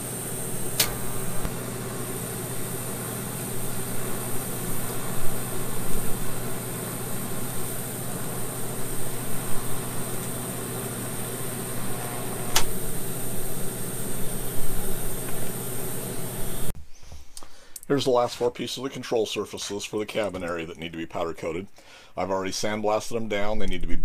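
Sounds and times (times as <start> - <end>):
arc welding hiss and hum: 0.0 - 16.8
sharp click: 0.8 - 1.6, 12.5 - 12.7.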